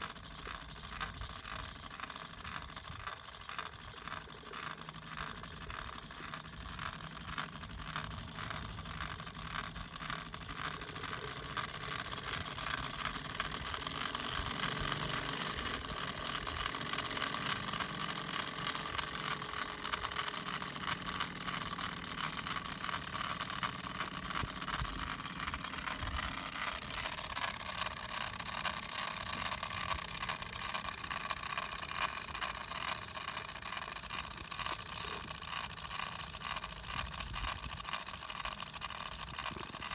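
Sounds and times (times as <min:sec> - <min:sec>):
miniature steam engine ticking: 0:00.0 - 0:39.9.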